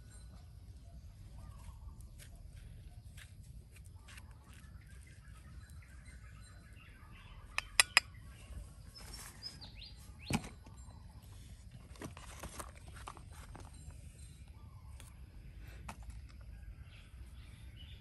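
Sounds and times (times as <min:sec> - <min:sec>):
birds chirping: 0:03.9 - 0:11.9
sharp clicks: 0:07.6 - 0:08.0.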